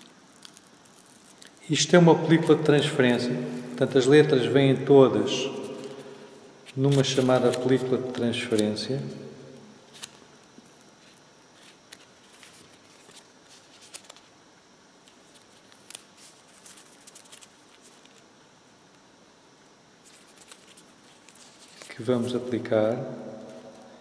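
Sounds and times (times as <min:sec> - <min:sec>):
paper sheet rustling and crinkling: 0:11.0 - 0:14.3, 0:15.1 - 0:18.2, 0:20.0 - 0:22.0.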